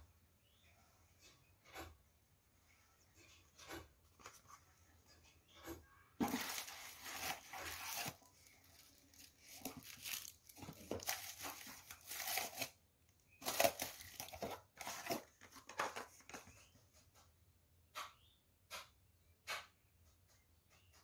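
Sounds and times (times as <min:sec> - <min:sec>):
paper packing crinkling: 0:06.2 - 0:12.8, 0:13.4 - 0:16.5.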